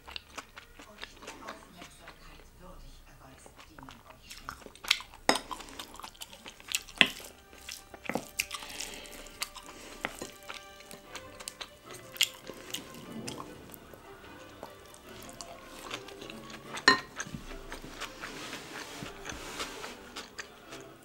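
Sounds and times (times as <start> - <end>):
soft background music: 0.0 - 21.0
utensils clicking against dishes: 14.4 - 18.2.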